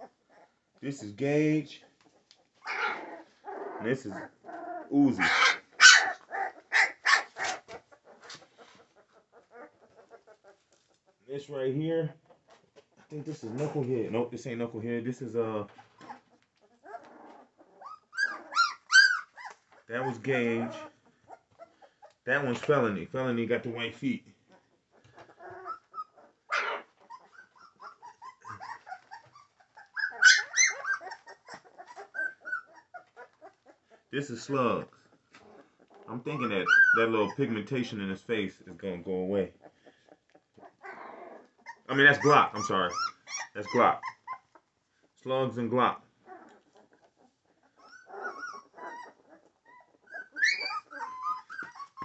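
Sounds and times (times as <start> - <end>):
puppies whimpering and squealing: 2.0 - 11.2, 15.7 - 22.2, 24.4 - 34.0, 35.0 - 38.0, 39.6 - 45.2, 46.2 - 52.0.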